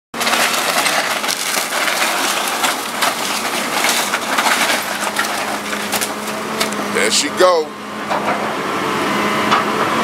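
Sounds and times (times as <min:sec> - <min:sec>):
timbers splintering and cracking: 0:00.2 - 0:07.1
excavator crushing wooden house: 0:00.2 - 0:08.8.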